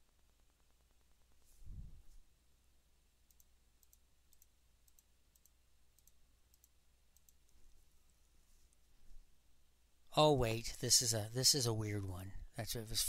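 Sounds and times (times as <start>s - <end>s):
faint computer mouse clicks: 3.3s - 7.6s.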